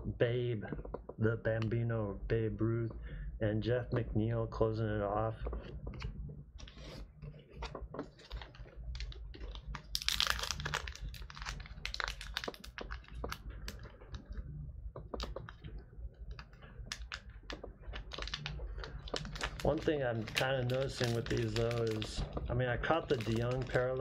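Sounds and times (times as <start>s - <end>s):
card pack wrapper crinkling: 6.6s - 14.2s, 15.2s - 24.0s.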